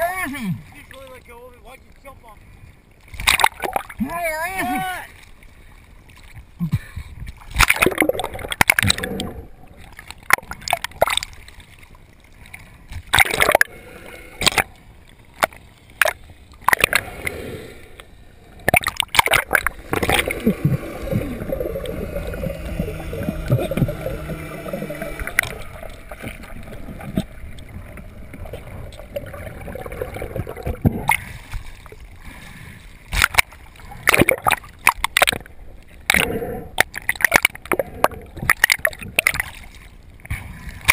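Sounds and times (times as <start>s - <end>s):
water sloshing and gurgling: 0.0s - 40.9s
splashes and knocks on camera: 3.1s - 4.0s, 18.6s - 21.5s
muffled low tone: 19.9s - 29.3s.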